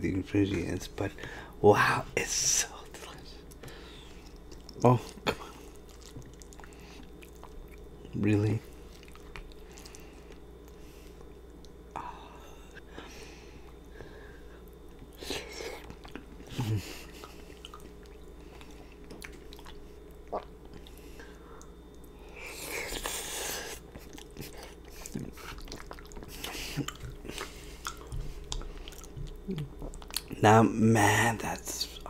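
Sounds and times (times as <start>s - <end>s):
chewing with wet mouth clicks: 3.4s - 12.0s, 14.6s - 22.3s, 22.9s - 30.4s.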